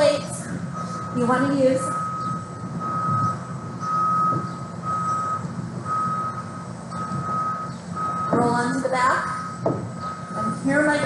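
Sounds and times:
low rumble: 0:00.0 - 0:11.0
reversing alarm beeping: 0:00.0 - 0:11.0.

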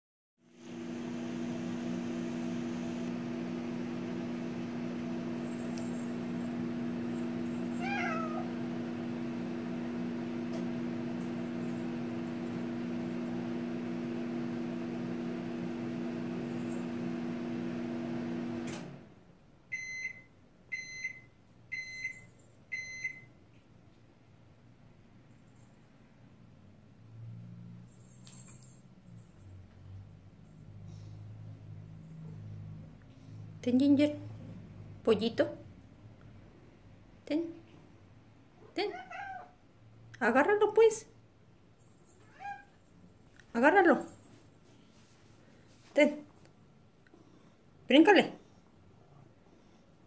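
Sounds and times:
microwave oven humming: 0:00.5 - 0:22.2
cat meowing: 0:07.7 - 0:08.5, 0:38.7 - 0:39.6, 0:42.2 - 0:42.7
microwave short beeps: 0:19.7 - 0:23.3.

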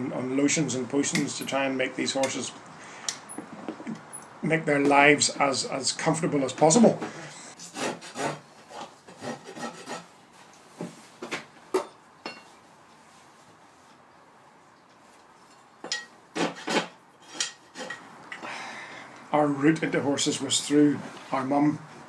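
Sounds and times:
rasp scraping a hoof: 0:07.1 - 0:10.1, 0:16.4 - 0:18.1.

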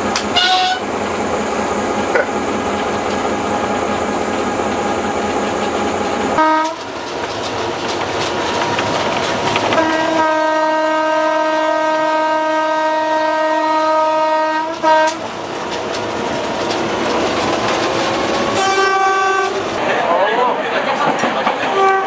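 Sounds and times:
rail clatter: 0:00.0 - 0:12.2, 0:12.9 - 0:22.0
train running noise: 0:00.0 - 0:22.0
locomotive horn blast: 0:00.2 - 0:00.9, 0:06.4 - 0:06.9, 0:09.7 - 0:15.3, 0:18.6 - 0:19.6, 0:21.7 - 0:22.0.

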